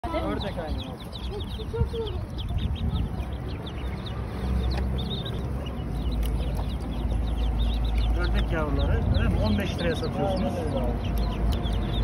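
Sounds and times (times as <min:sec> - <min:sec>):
ducklings peeping: 0:00.0 - 0:12.0
steady low rumble: 0:00.7 - 0:12.0.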